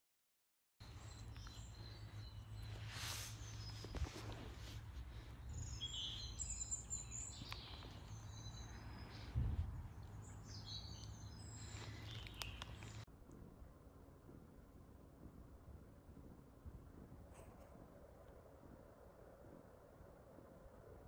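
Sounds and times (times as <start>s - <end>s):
small birds chirping: 0.8s - 13.1s
steady low hum: 0.8s - 21.0s
low thump: 9.3s - 9.9s.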